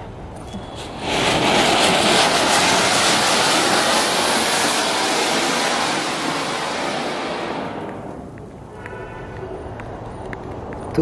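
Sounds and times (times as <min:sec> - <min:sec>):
firework fountain hissing: 0:00.5 - 0:08.8.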